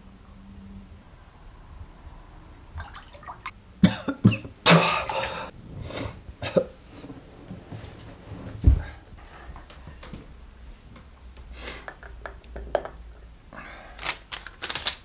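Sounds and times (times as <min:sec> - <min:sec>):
man coughing and choking: 0:03.8 - 0:05.5, 0:06.4 - 0:06.8.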